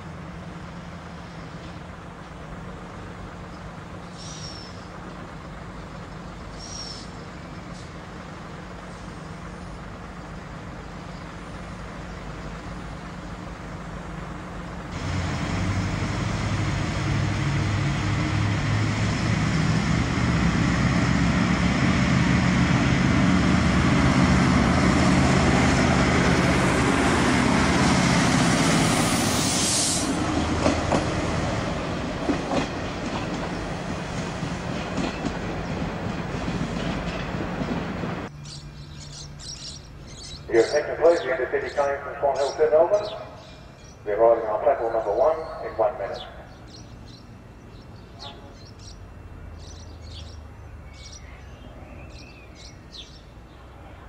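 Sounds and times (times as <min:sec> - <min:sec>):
diesel railcar engine drone: 0:00.0 - 0:54.0
wheels clicking over rail joints: 0:30.3 - 0:38.0.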